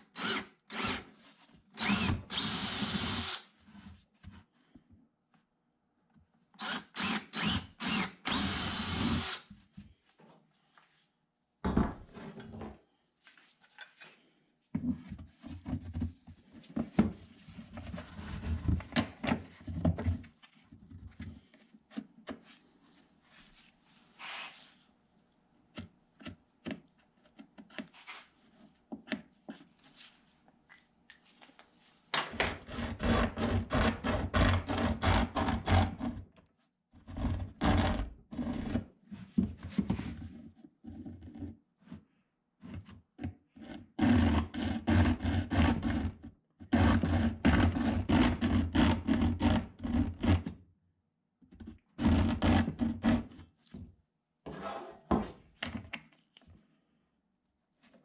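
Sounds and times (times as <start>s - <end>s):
drill running: 0.2s - 1.0s, 1.8s - 3.4s, 6.6s - 9.5s.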